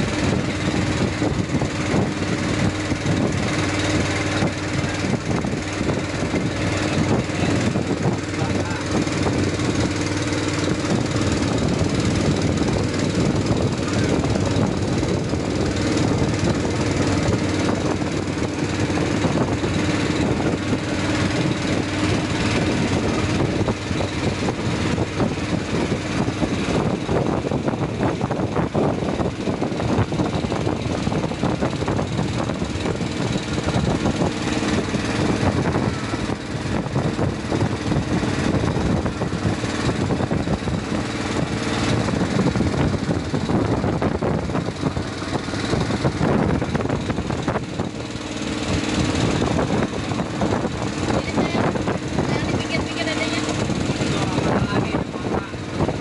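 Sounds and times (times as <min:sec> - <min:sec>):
boat engine droning: 0:00.0 - 0:56.0.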